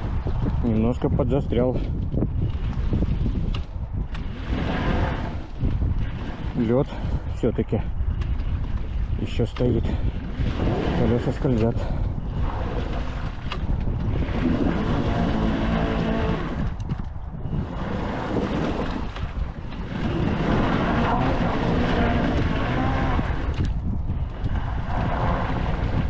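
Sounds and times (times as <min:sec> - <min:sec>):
wind noise on microphone: 0:00.0 - 0:26.0
electric motor whining: 0:12.4 - 0:16.9, 0:17.5 - 0:26.0.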